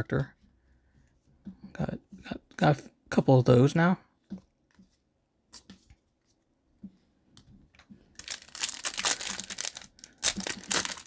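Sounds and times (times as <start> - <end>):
foil wrapper crinkling and tearing: 8.2 - 11.0.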